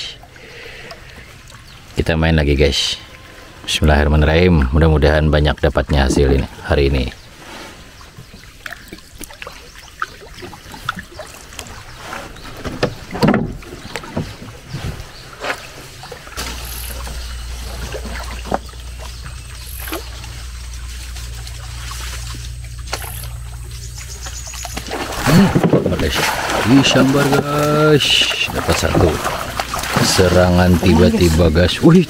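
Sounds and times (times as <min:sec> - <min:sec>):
water lapping: 0:00.0 - 0:32.0
paddle splashes: 0:07.2 - 0:32.0
low rumble: 0:16.4 - 0:27.4.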